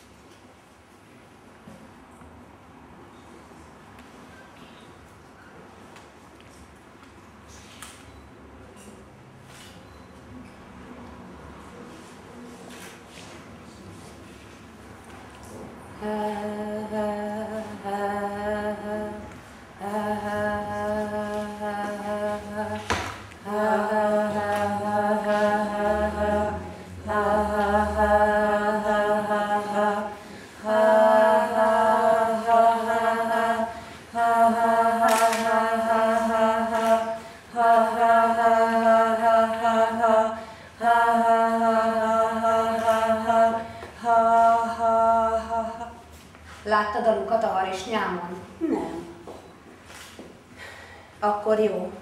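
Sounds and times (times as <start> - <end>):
unaccompanied chant-like singing: 15.8 - 46.2.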